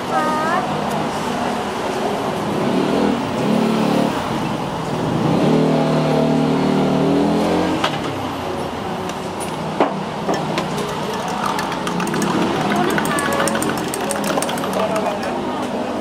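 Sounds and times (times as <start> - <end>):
street traffic noise: 0.0 - 16.0
spoon clinking glassware: 10.3 - 15.4.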